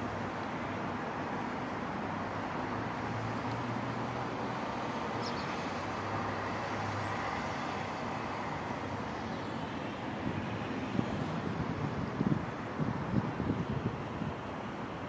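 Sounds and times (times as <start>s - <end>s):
road traffic rumble: 0.0s - 15.0s
wind buffeting microphone: 10.2s - 15.0s.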